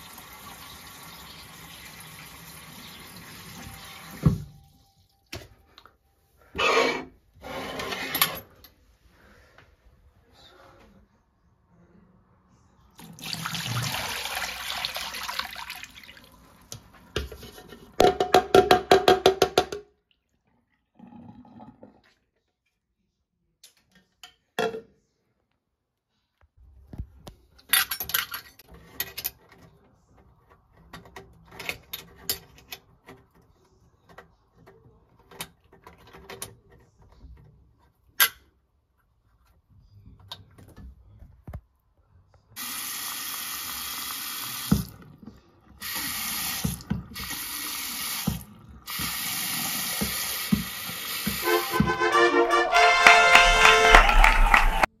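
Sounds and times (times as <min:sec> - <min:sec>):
tap running into basin: 0:13.0 - 0:17.3.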